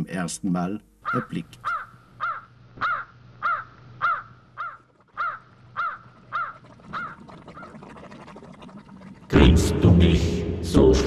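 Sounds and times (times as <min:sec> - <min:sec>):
bird calling: 0:01.0 - 0:07.8.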